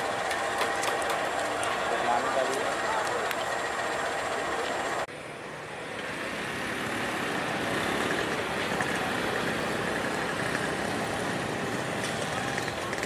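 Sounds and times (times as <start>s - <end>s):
diesel locomotive idling: 0.0s - 6.2s.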